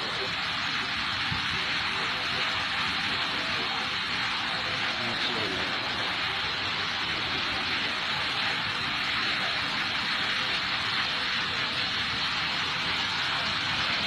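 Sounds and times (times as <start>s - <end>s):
floodwater rushing: 0.0s - 14.0s.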